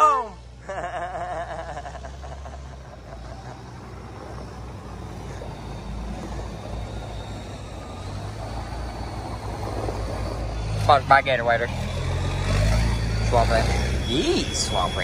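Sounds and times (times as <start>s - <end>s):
diesel truck driving on gravel: 2.0s - 15.0s.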